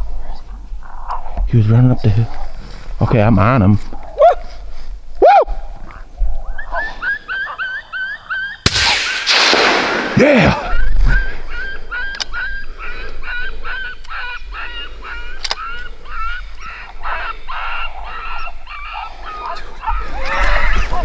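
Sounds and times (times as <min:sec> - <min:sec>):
coyote yelping: 0:03.9 - 0:04.6, 0:05.2 - 0:09.3, 0:10.6 - 0:21.0
sharp clicks: 0:15.4 - 0:15.6.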